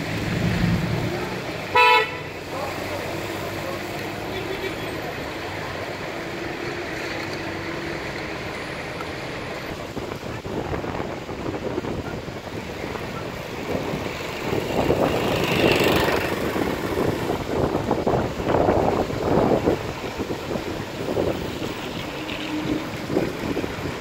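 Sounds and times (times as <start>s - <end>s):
car engines running: 0.0s - 24.0s
tyres on wet asphalt: 0.0s - 24.0s
wind buffeting microphone: 9.7s - 24.0s.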